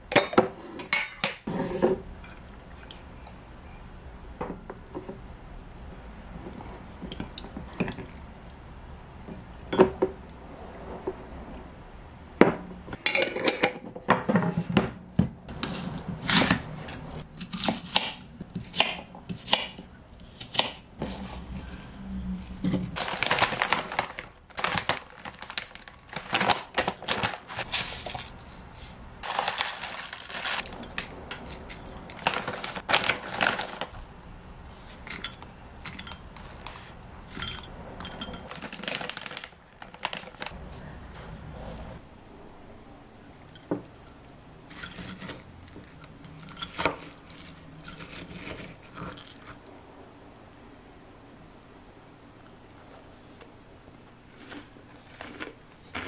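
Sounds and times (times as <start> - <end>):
plastic packaging rustling: 21.1 - 34.1, 38.4 - 40.6.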